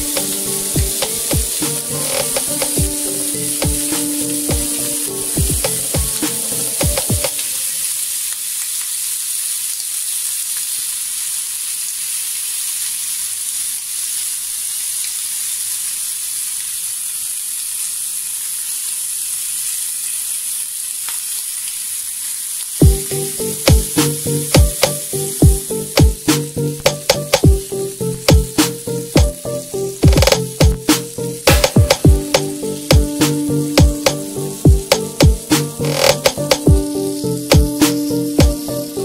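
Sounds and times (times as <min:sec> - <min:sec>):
background music: 0:00.0 - 0:07.9, 0:22.8 - 0:39.0
meat sizzling on a grill pan: 0:00.0 - 0:26.8, 0:32.1 - 0:35.5, 0:36.8 - 0:39.0.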